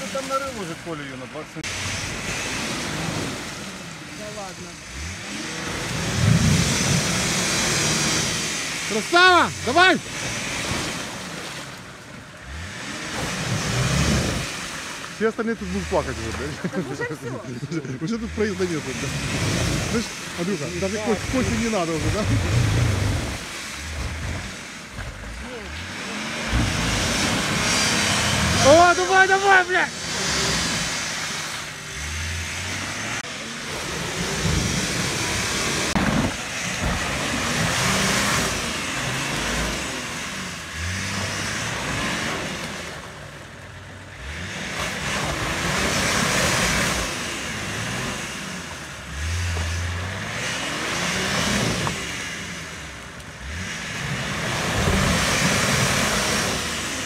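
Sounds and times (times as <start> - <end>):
off-road engine revving: 0.0 - 57.0
wheels churning through mud: 0.0 - 57.0.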